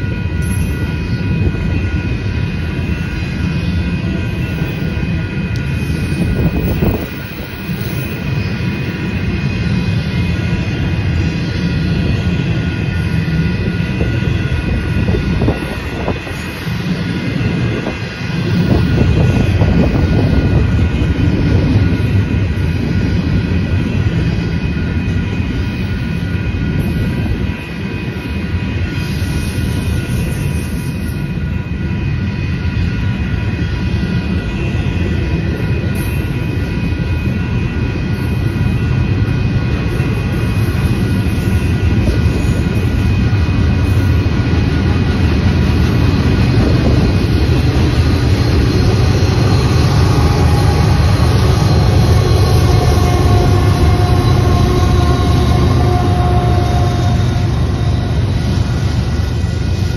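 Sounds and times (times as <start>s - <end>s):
diesel locomotives: 0.0s - 59.9s
train wheels rumbling on rail: 0.0s - 59.9s.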